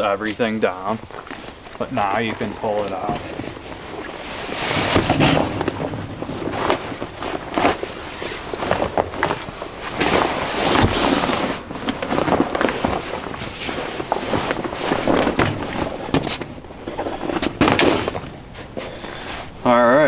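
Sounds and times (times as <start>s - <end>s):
fabric bag rustling and scraping: 3.1s - 16.1s.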